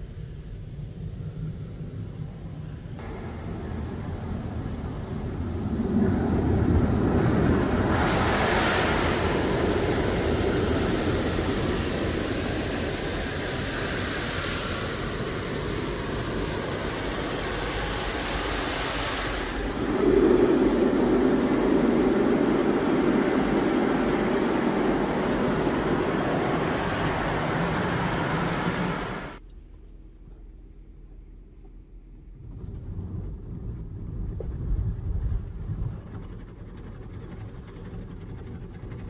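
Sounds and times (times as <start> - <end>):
hissing water spray: 3.0 - 29.4
rotating brushes rumbling: 3.0 - 29.4
water rushing over car: 3.2 - 29.4.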